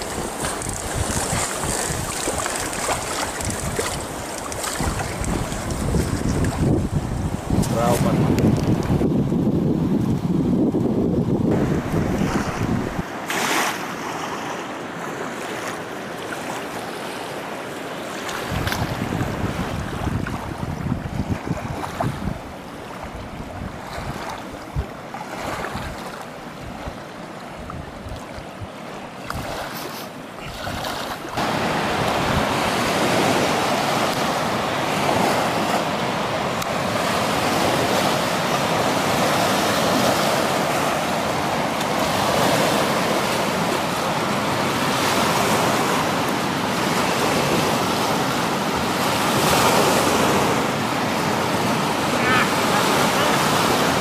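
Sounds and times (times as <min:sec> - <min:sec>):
river rushing through whitewater: 0:00.0 - 0:09.4, 0:21.7 - 0:54.0
wind gusting on microphone: 0:00.0 - 0:13.2, 0:18.4 - 0:54.0.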